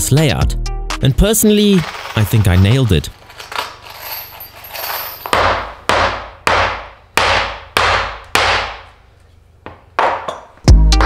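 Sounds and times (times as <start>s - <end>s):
music: 0.0s - 2.9s, 10.6s - 11.0s
hammer striking nails into wood: 5.3s - 9.0s.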